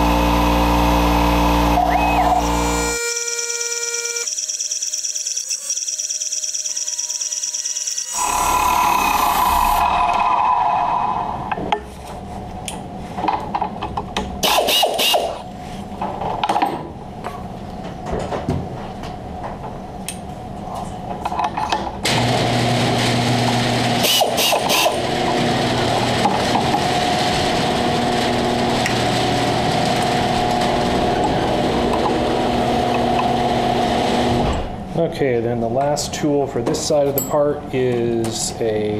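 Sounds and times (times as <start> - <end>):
milling machine running: 0.0 - 10.6, 22.0 - 34.5.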